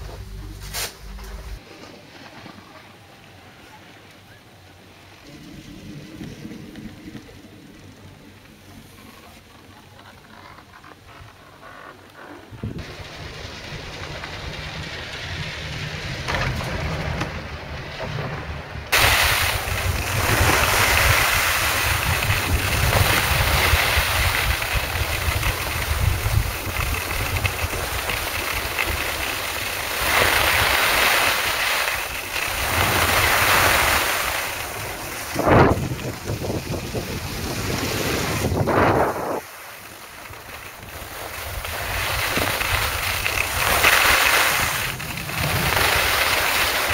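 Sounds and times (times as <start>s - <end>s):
skis hissing over snow: 0.0s - 2.6s, 18.9s - 46.9s
wind rushing over microphone: 12.5s - 46.9s.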